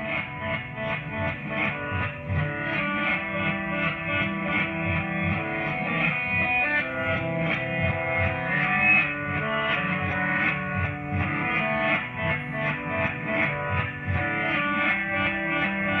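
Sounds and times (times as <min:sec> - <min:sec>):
guitar music over loudspeakers: 0:00.0 - 0:16.0.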